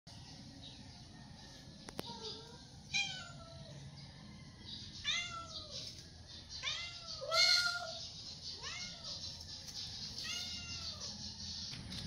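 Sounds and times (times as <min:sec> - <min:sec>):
cat meowing: 0:02.2 - 0:03.6, 0:05.0 - 0:05.7, 0:06.6 - 0:08.0, 0:08.6 - 0:09.2, 0:10.2 - 0:11.1.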